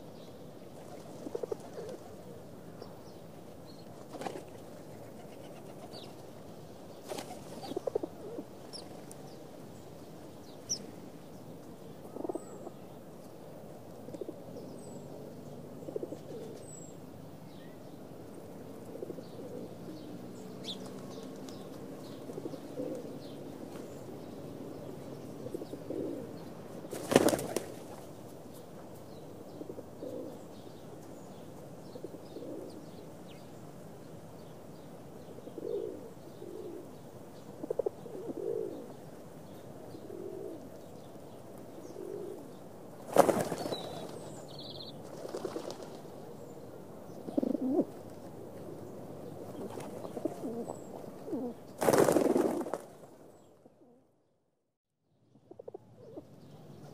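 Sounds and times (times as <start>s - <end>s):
pigeons cooing: 1.0s - 2.3s, 7.1s - 8.9s, 15.8s - 16.6s, 22.0s - 23.3s, 25.4s - 26.4s, 29.6s - 30.4s, 32.0s - 32.9s, 35.4s - 36.9s, 37.5s - 39.0s, 39.9s - 40.9s, 41.7s - 42.6s, 47.2s - 48.0s, 49.4s - 52.6s
wing flapping: 26.9s - 28.1s, 43.0s - 44.3s, 45.0s - 46.1s, 51.8s - 53.1s.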